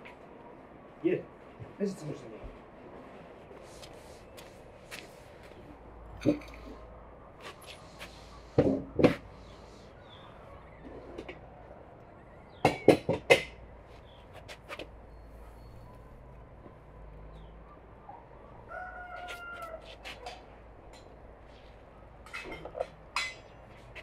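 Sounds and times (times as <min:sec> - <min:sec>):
sharp knocks: 0:12.6 - 0:13.6
rooster crowing: 0:18.5 - 0:20.2.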